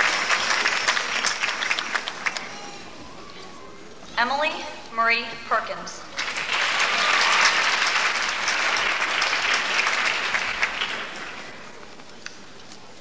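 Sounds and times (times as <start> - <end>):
audience applauding: 0.0 - 3.2, 6.1 - 12.0.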